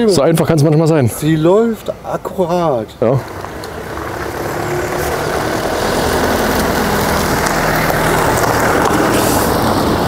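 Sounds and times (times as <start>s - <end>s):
car driving past: 3.2s - 10.0s.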